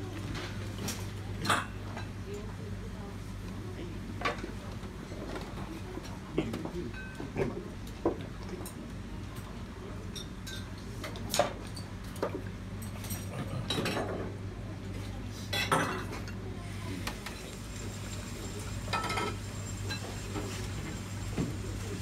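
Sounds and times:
dishes and utensils clinking: 6.9 - 7.4, 10.1 - 14.3, 15.5 - 16.4, 18.8 - 20.7.

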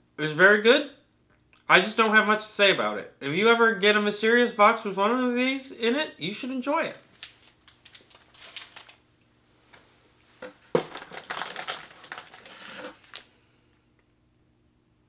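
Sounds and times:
snack packaging crinkling: 6.9 - 9.0, 10.7 - 13.4.

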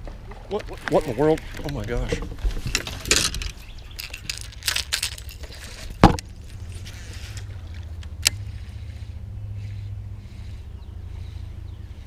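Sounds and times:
fishing gear rattles and clicks: 0.4 - 8.6
steady low hum: 5.9 - 12.0.

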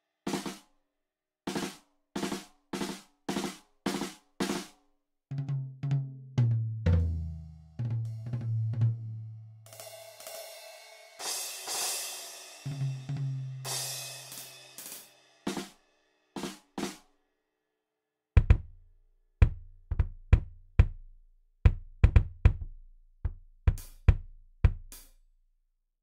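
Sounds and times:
cymbal ringing: 9.7 - 13.0
heavy drum strikes: 12.6 - 15.7, 18.4 - 18.7.

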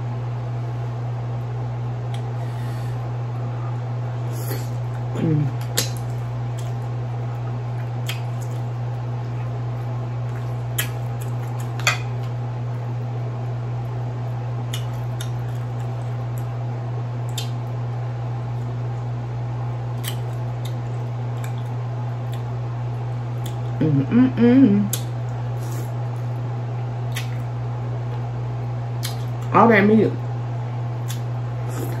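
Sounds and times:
steady low hum: 0.0 - 32.0
wet chewing: 7.7 - 12.4, 14.7 - 16.5, 20.0 - 23.8, 27.0 - 27.5.

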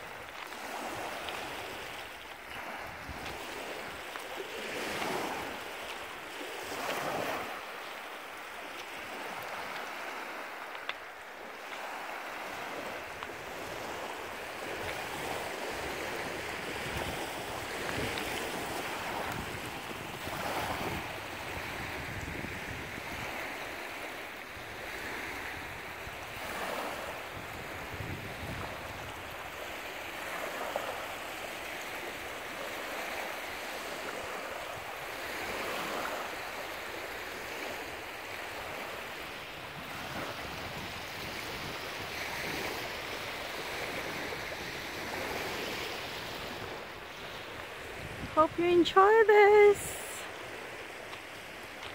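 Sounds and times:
wind rumbling on microphone: 0.0 - 5.6, 12.5 - 23.8, 24.5 - 30.8, 39.6 - 48.6
waves lapping on pebble beach: 0.0 - 51.9.

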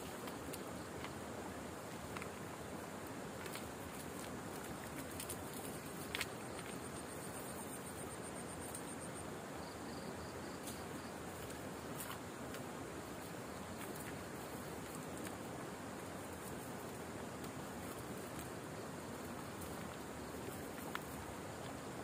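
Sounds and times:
background hiss: 0.0 - 22.0
pulsed insect call: 4.8 - 11.8.

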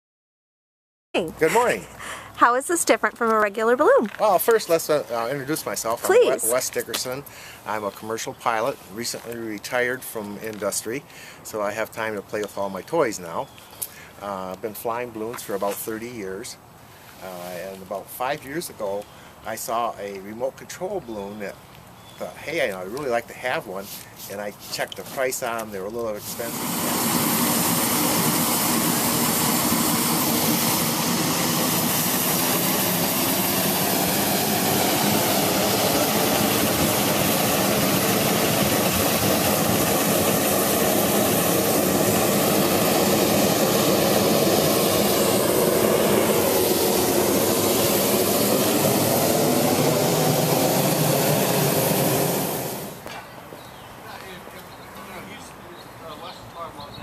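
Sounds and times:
inflator fan blowing air: 4.7 - 9.8, 23.2 - 53.0.

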